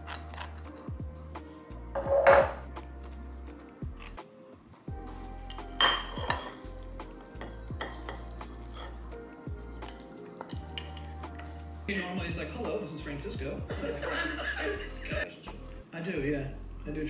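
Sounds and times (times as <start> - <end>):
soft lo-fi music: 0.0 - 17.0
spatula scraping a frying pan: 7.4 - 9.1
knife scraping on toast: 7.8 - 9.0.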